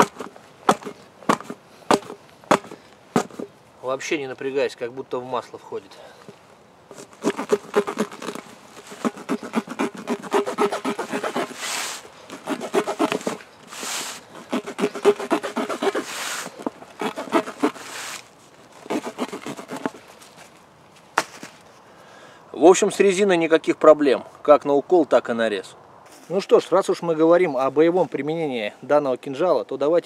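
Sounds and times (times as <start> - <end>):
blade sawing through rubber: 0.0 - 3.5, 6.9 - 20.1.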